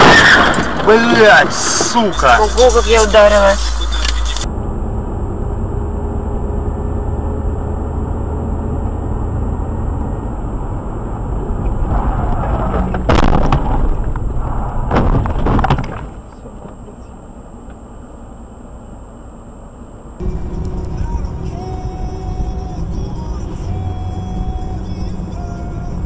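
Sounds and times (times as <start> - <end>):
loud bangs: 0.0 - 4.5, 11.8 - 16.2
car engine and road rumble: 0.0 - 26.0.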